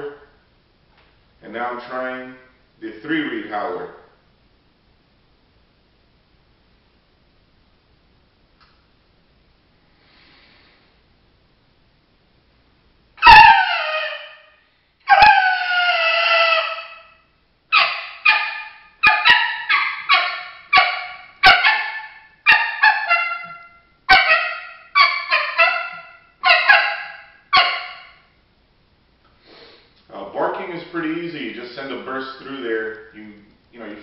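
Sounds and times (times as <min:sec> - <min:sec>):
coyote call howls: 0:13.2 - 0:14.5, 0:15.1 - 0:28.2
coyote call barks and yips: 0:13.2 - 0:28.2.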